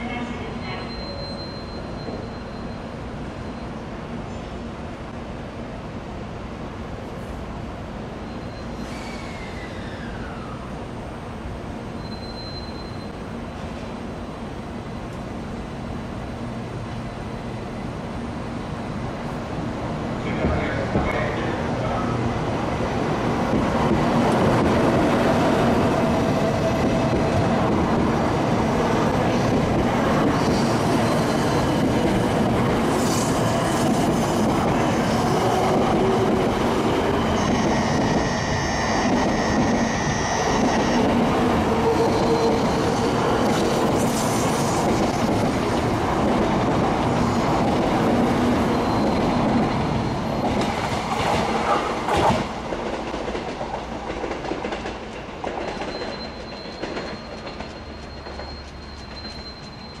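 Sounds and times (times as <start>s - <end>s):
train rumbling and clattering by: 13.2s - 60.0s.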